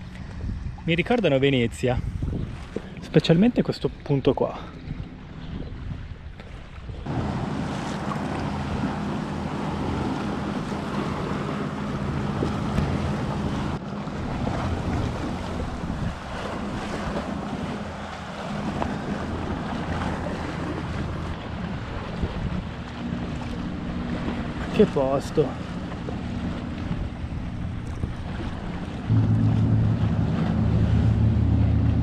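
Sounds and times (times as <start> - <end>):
motor boat engine hum: 0.0 - 32.0
wind buffeting microphone: 0.0 - 32.0.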